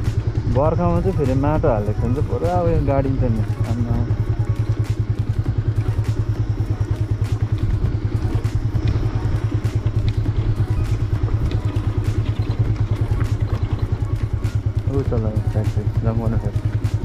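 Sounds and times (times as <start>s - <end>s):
motorcycle engine throbbing: 0.0s - 17.0s.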